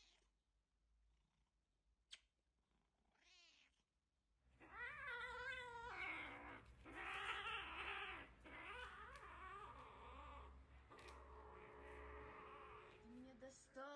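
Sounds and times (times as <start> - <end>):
kitten meowing: 4.6 - 13.2.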